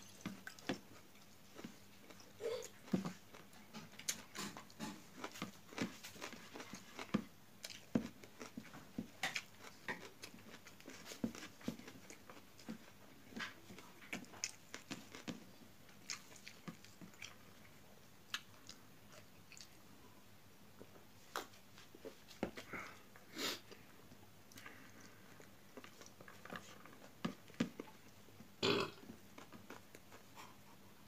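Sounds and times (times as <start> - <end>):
chewing and lip-smacking: 0.1 - 19.9.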